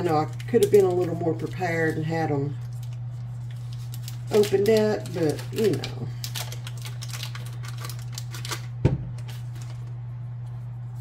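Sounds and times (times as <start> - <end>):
paper wrapper crinkling: 0.0 - 10.5.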